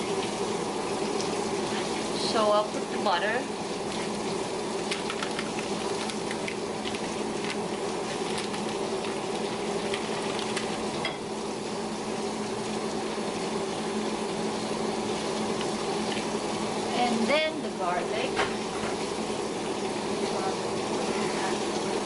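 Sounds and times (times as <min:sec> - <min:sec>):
food sizzling in pans: 0:00.0 - 0:22.0
wrapper crinkling: 0:04.8 - 0:11.0.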